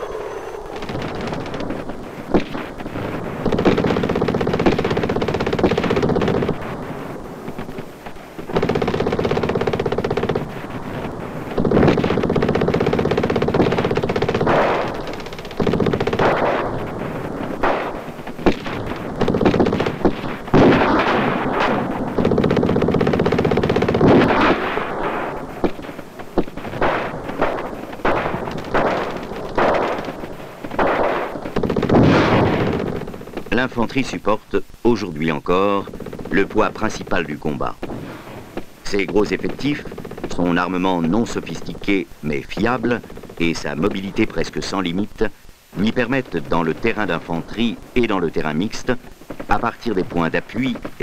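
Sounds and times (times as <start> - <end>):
sharp single gunshots: 0.0 - 6.8, 13.5 - 33.0
automatic gunfire bursts: 0.0 - 33.9, 35.9 - 45.0.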